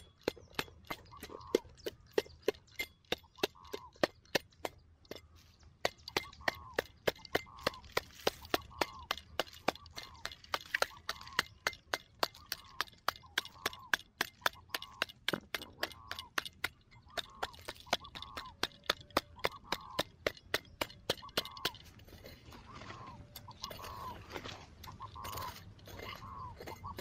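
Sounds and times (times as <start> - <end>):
shovel scraping loose dirt: 21.8 - 27.0.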